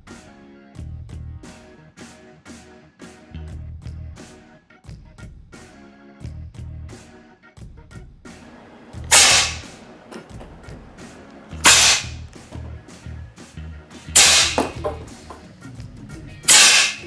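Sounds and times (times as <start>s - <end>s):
background music with low beat: 0.0s - 17.0s
sharp cracks with hissing tail: 8.4s - 12.5s, 13.9s - 14.6s, 16.5s - 17.0s.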